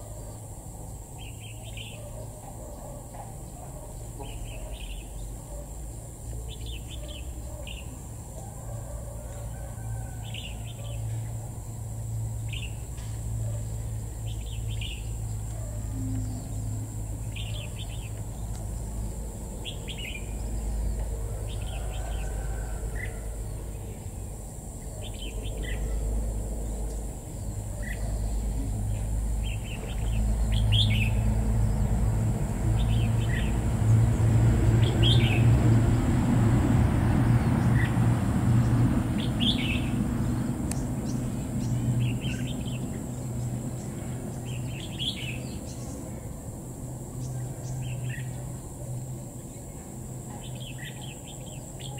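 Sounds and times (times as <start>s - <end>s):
bird chirping calls: 0.0s - 11.3s, 13.4s - 18.9s, 24.8s - 31.3s, 39.2s - 46.1s.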